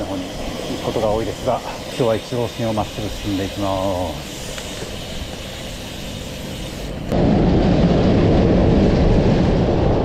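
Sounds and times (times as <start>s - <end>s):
wind buffeting microphone: 7.1s - 10.0s.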